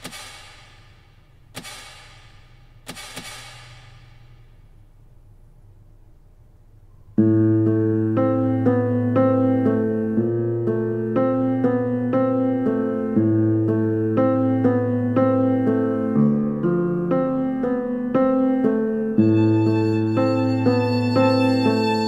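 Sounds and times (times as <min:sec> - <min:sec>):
keyboard notes: 0:07.2 - 0:22.0.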